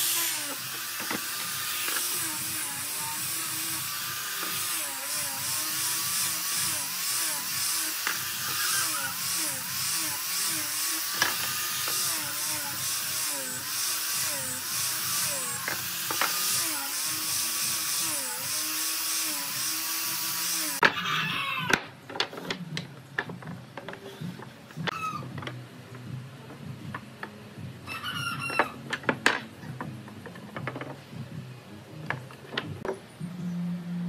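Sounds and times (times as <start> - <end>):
angle grinder sanding wood: 0.0 - 20.8.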